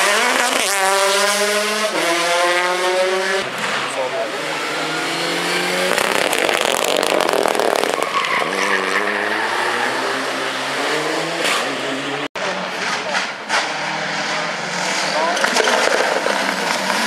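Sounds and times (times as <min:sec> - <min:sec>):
rally car engine accelerating: 0:00.0 - 0:17.0
engine crackle: 0:05.7 - 0:09.1, 0:14.9 - 0:17.0.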